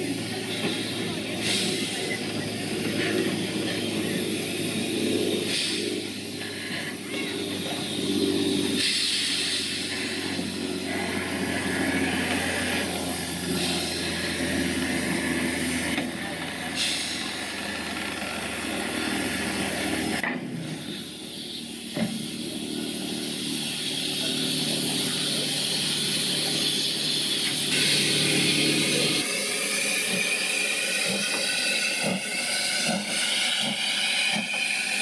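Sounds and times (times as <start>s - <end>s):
steam hissing: 0.0s - 35.0s.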